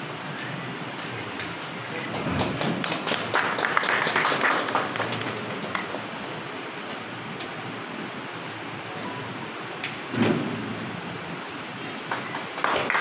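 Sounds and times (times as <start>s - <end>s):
small group clapping: 1.0s - 7.0s, 12.0s - 13.0s.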